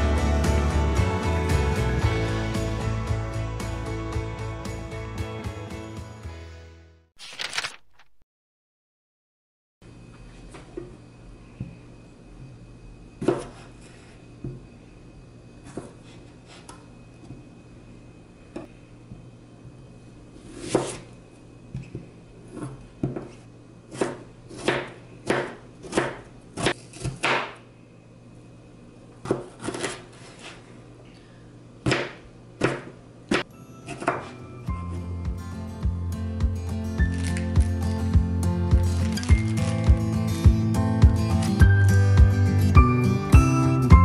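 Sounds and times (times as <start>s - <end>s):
knife chopping on wooden board: 13.2s - 13.7s, 20.6s - 21.0s, 21.8s - 27.6s, 29.2s - 30.6s, 31.8s - 34.3s.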